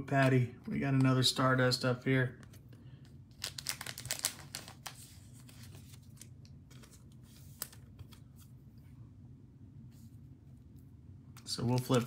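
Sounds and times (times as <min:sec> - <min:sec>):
low steady hum: 0:00.0 - 0:12.0
cards rustling and clicking: 0:00.2 - 0:01.4, 0:02.4 - 0:08.6, 0:11.4 - 0:12.0.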